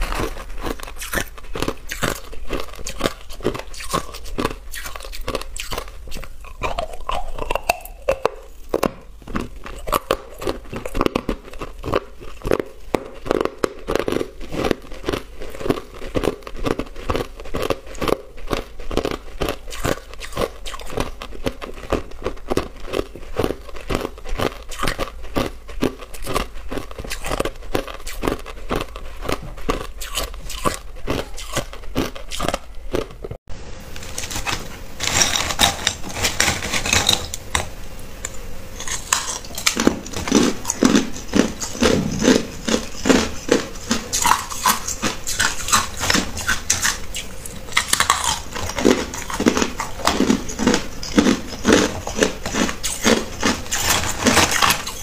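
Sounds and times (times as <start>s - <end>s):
crushed ice being chewed: 0.0s - 33.4s, 34.0s - 55.0s.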